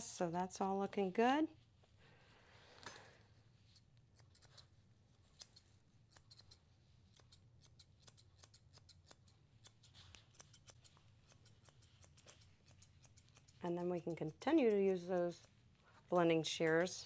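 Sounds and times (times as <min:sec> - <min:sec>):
shears snipping dog hair: 0:03.8 - 0:17.0.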